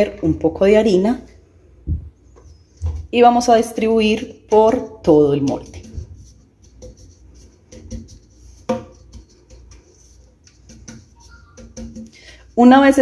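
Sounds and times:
cake pan knocking on countertop: 7.6s - 9.9s, 10.5s - 12.2s.

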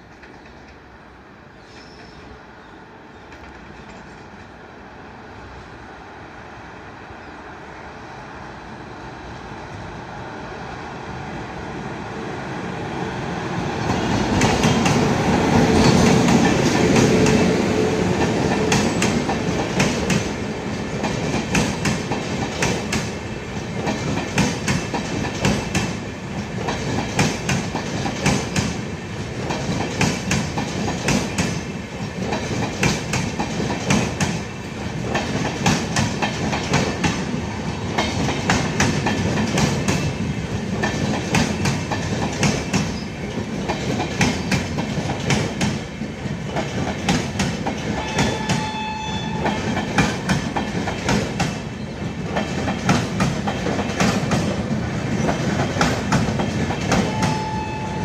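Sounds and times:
train wheels clickety-clack: 0.0s - 0.9s, 3.2s - 4.6s, 13.7s - 57.7s
train rumble: 0.0s - 58.0s.

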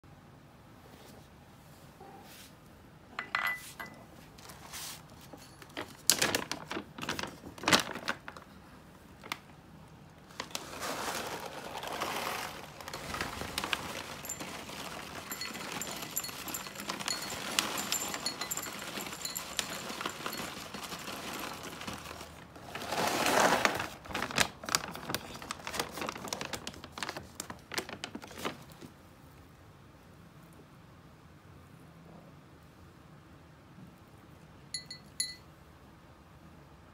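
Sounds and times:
food bag crinkling: 5.4s - 8.6s, 10.2s - 28.9s
kibble rattling into glass bowl: 11.0s - 24.0s.

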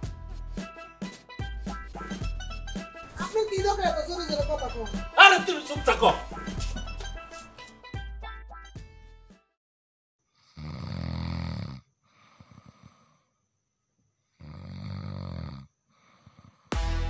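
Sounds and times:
man snoring heavily: 10.4s - 13.2s, 14.4s - 16.8s
faint breathing: 12.0s - 13.4s, 15.9s - 16.7s.

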